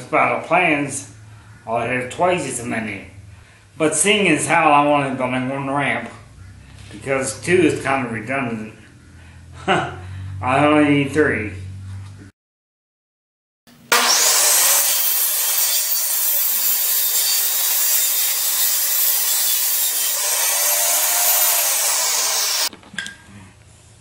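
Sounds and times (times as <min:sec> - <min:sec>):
power saw cutting wood: 0:13.7 - 0:22.7.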